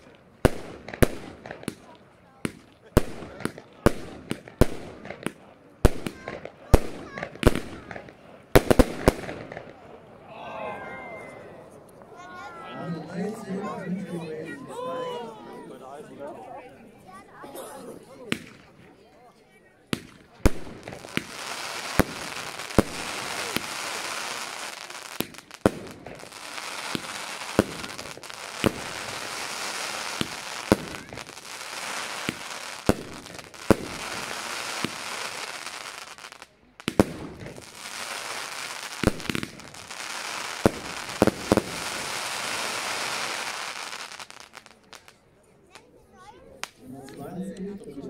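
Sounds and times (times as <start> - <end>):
firework bangs: 0.0 - 9.9, 18.3 - 18.7, 19.9 - 45.1.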